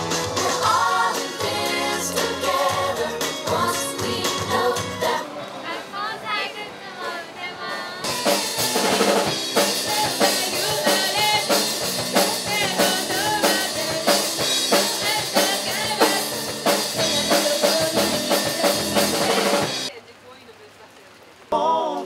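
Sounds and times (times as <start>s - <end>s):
bass guitar: 0.0s - 5.2s, 8.1s - 19.9s
drum kit beat: 0.0s - 5.2s, 8.0s - 19.9s
rock band playing live: 0.0s - 5.2s, 8.0s - 19.9s.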